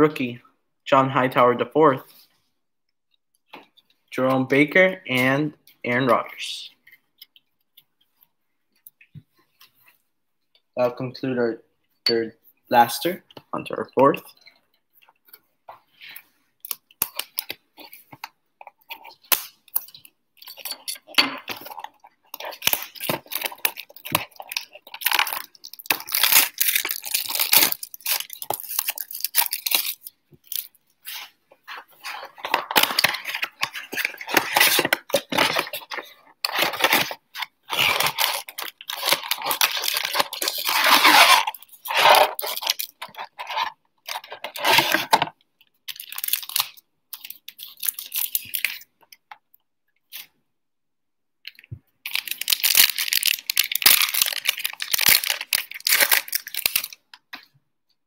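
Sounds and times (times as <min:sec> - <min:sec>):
plastic shrink-wrap tearing: 0:19.0 - 0:45.2, 0:45.9 - 0:48.8, 0:52.1 - 0:57.0.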